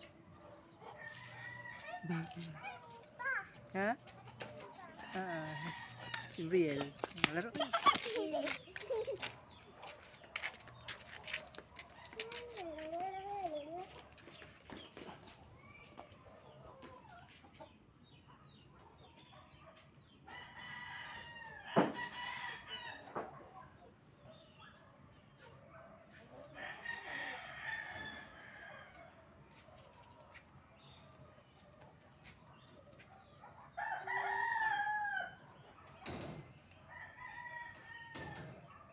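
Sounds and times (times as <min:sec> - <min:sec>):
rooster crowing: 0:33.8 - 0:35.4.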